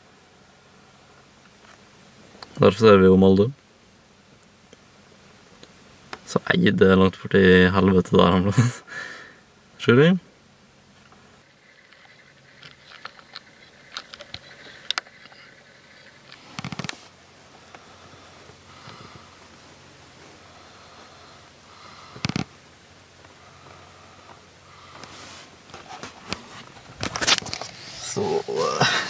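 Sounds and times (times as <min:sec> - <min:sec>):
camera handling clicks and rustles: 0:11.8 - 0:17.0.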